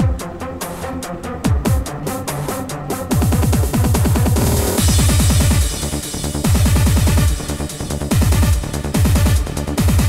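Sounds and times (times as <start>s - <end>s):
hard trance music: 0.0s - 10.0s
hissing hi-hats: 1.8s - 10.0s
deep kick drum rolls: 3.1s - 10.0s.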